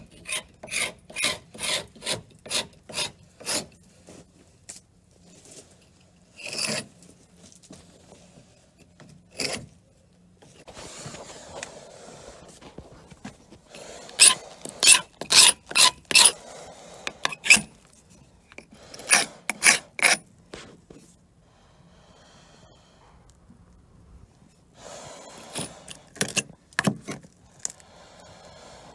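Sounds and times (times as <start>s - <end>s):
scraper rasping on painted wood: 13.7s - 18.0s, 18.7s - 20.8s.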